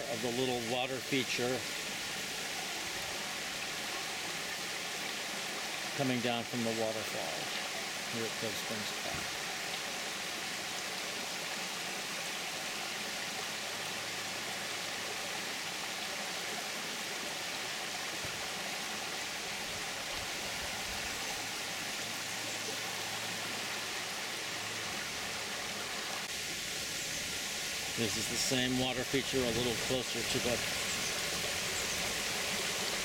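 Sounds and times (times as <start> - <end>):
creek rushing over stones: 0.0 - 33.0.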